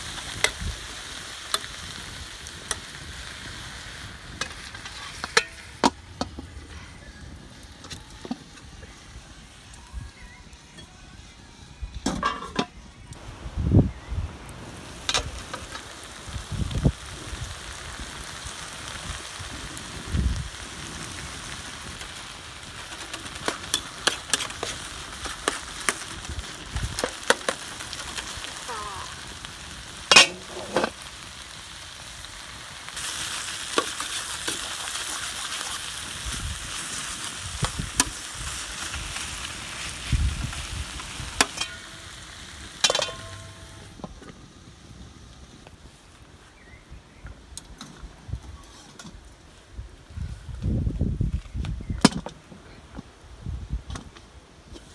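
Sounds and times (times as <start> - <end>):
vegetables sizzling in a pan: 0.0 - 10.2, 13.2 - 45.2
metal utensils scraping a pan: 4.4 - 6.5, 12.1 - 12.8, 30.1 - 31.0, 41.4 - 42.2, 42.8 - 43.9.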